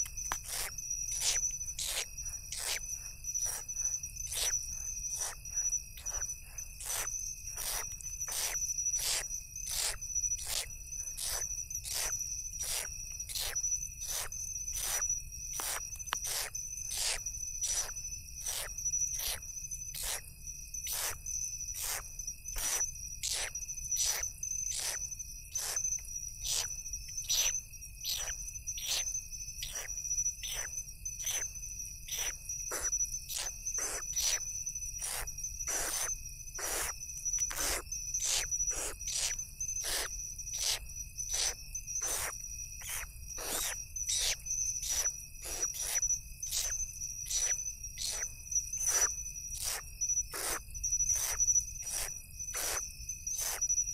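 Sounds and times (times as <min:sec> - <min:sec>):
crickets chirping: 0:00.0 - 0:53.9
owl chicks hissing begging calls: 0:06.0 - 0:06.2, 0:21.8 - 0:22.0, 0:29.6 - 0:31.4, 0:32.1 - 0:34.4, 0:35.0 - 0:36.9, 0:37.5 - 0:46.7, 0:47.3 - 0:48.2, 0:48.8 - 0:50.6, 0:51.2 - 0:52.8, 0:53.4 - 0:53.6.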